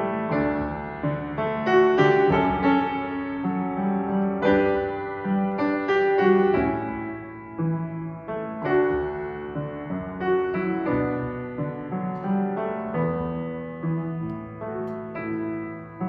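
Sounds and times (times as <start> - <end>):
upright piano playing hymn chords: 0.0 - 16.0.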